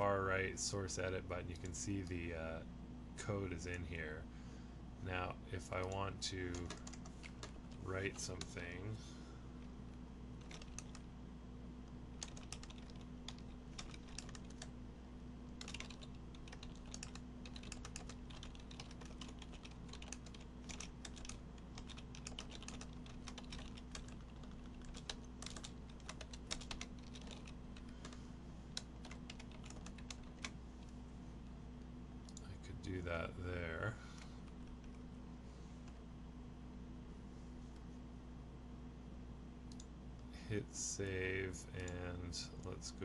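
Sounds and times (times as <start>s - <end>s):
faint steady hum: 0.0s - 43.0s
typing on keyboard: 5.8s - 7.6s, 10.4s - 11.0s, 12.2s - 14.7s, 15.6s - 28.2s, 28.8s - 30.6s.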